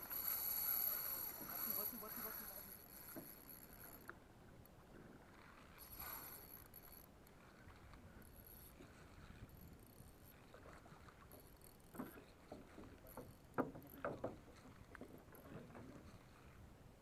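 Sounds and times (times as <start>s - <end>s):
fishing reel knocks and clicks: 0.0s - 4.2s, 5.8s - 7.5s
water lapping against boat: 0.0s - 16.8s.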